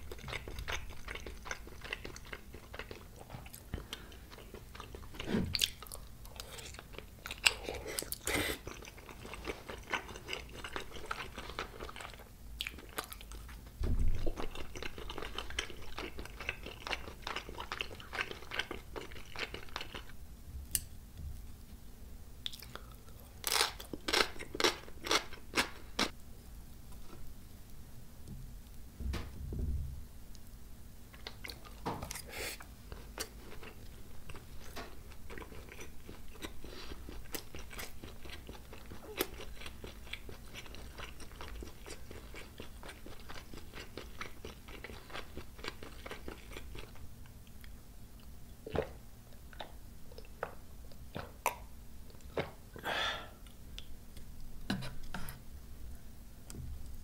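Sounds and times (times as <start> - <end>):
wet chewing: 0.0 - 20.1, 32.9 - 48.9.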